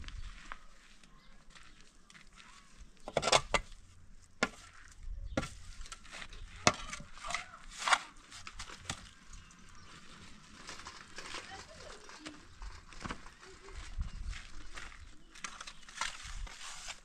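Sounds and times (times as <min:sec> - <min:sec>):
shovel scraping stony dirt: 0:03.0 - 0:09.2, 0:15.4 - 0:17.0.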